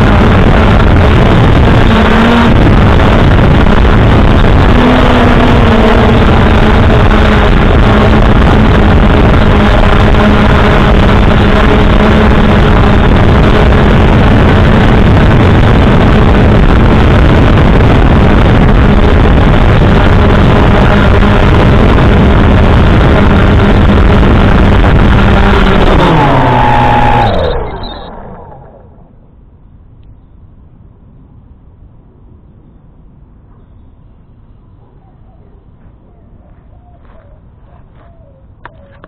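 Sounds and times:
drone motors humming: 0:00.0 - 0:31.2.

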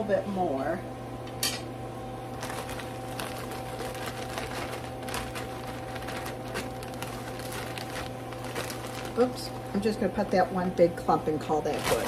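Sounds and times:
steady low hum: 0:00.0 - 0:12.0
broccoli crackling in hot pan: 0:02.4 - 0:10.3.

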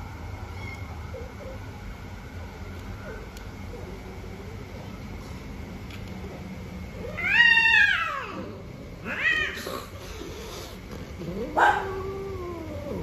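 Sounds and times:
cat yowling: 0:07.0 - 0:09.6, 0:11.2 - 0:13.0.

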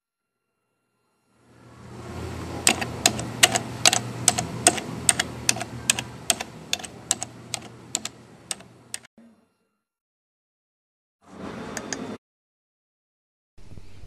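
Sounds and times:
low steady hum: 0:01.4 - 0:09.1
keyboard keys clacking: 0:02.6 - 0:09.1.

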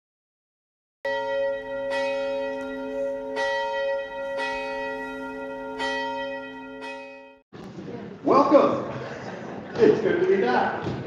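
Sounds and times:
bell ringing: 0:01.1 - 0:07.4.

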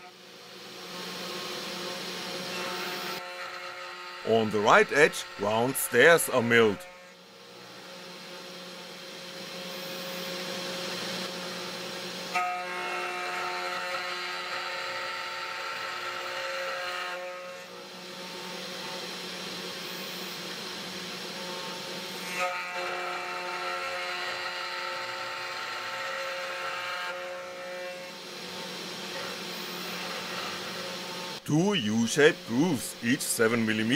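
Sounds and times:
router spindle hum: 0:00.8 - 0:08.7, 0:28.1 - 0:33.9.

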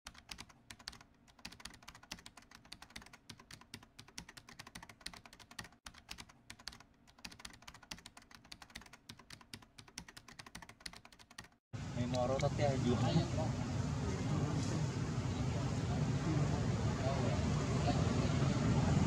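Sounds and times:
rapid keyboard typing: 0:00.1 - 0:11.6.

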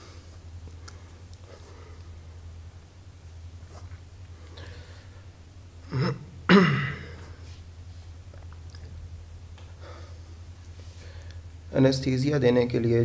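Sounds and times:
man clearing throat: 0:05.8 - 0:07.4.

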